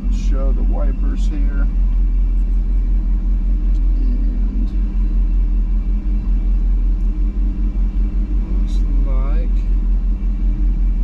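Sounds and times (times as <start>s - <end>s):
pickup engine rumble in cab: 0.0s - 11.0s.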